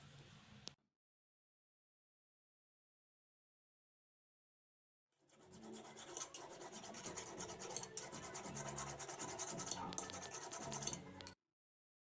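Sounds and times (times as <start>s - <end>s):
steel blade rasping on file: 5.3s - 11.3s.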